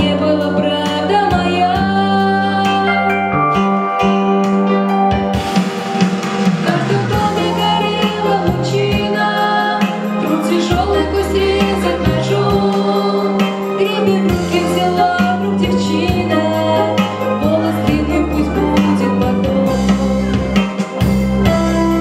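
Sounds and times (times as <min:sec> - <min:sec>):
woman singing into a microphone: 0:00.0 - 0:03.4, 0:06.6 - 0:20.6
instrumental accompaniment with bass: 0:00.0 - 0:22.0.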